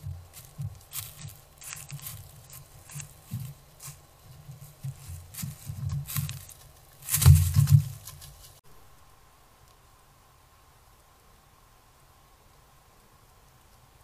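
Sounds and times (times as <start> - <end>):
deer hoof thumps: 0.0 - 8.6
dry leaves crackling: 0.0 - 8.6.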